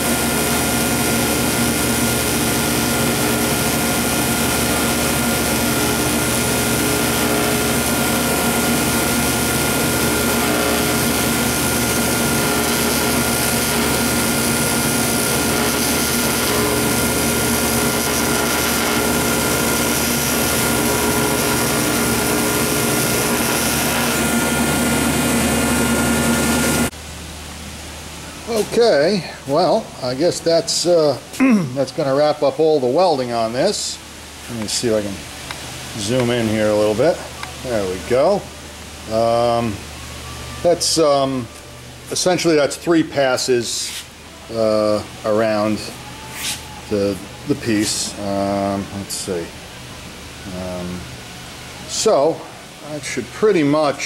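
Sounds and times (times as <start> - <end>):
welding arc buzzing hiss: 0.0 - 27.0, 28.3 - 54.0
welding machine hum: 0.0 - 27.0.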